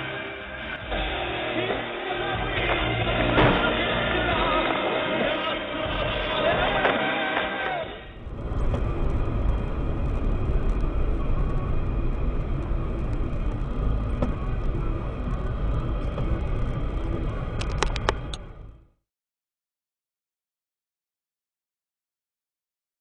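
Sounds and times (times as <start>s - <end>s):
car tyres and engine rumble: 0.0s - 19.0s
sharp clicks: 17.6s - 18.5s.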